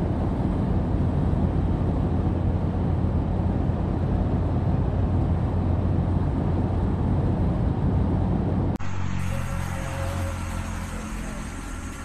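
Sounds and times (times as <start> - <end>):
wind buffeting microphone: 0.0 - 8.8
vehicle running noise: 0.0 - 12.0.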